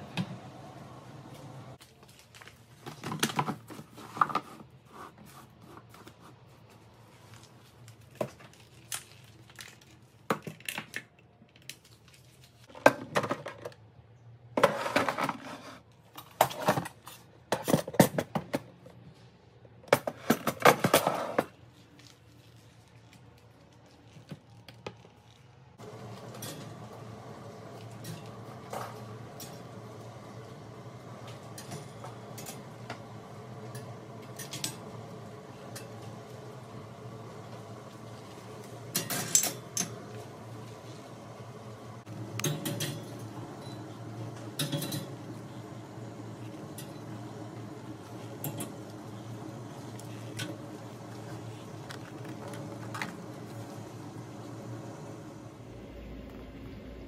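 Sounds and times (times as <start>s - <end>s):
low steady hum: 25.7s - 57.0s.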